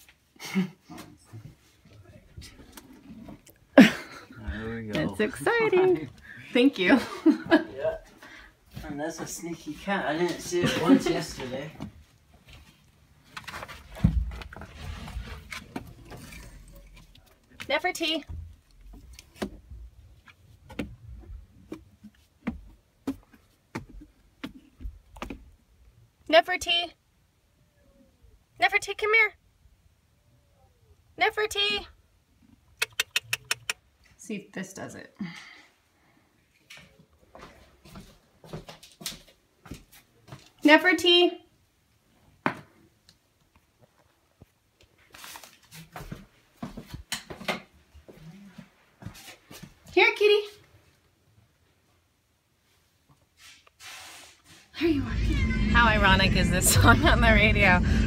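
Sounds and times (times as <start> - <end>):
insulation rustling and scraping: 12.0 - 17.4
low rumble: 54.8 - 58.0.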